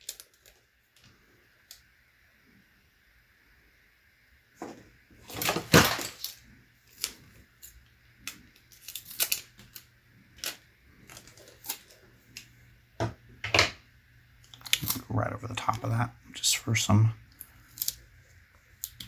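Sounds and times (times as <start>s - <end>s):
tape peeling and rustling: 0.0s - 1.8s, 5.2s - 12.5s, 17.3s - 19.0s.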